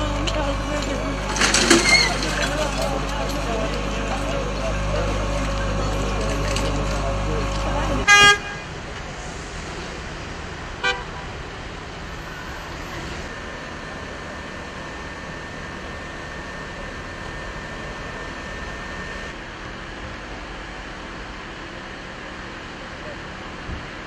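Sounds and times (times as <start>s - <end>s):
street noise: 0.0s - 24.0s
short car horn toot: 8.1s - 8.7s.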